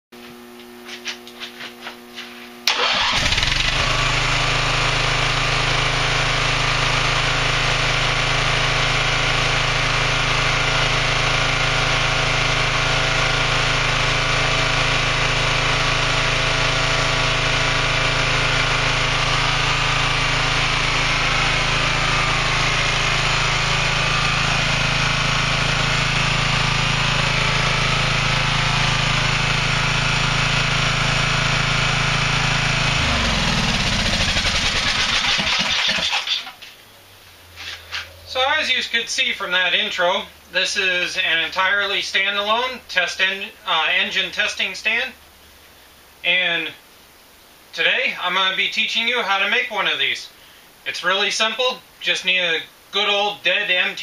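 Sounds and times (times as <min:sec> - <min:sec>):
small engine starting and running: 0:02.6 - 0:36.8.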